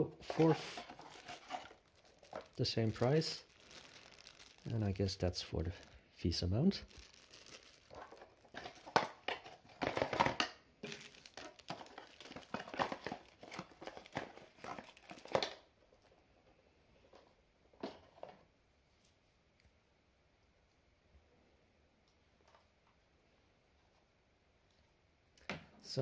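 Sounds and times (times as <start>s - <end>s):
plastic bag crinkling: 0.2s - 15.7s
cardboard box handling: 0.3s - 2.6s.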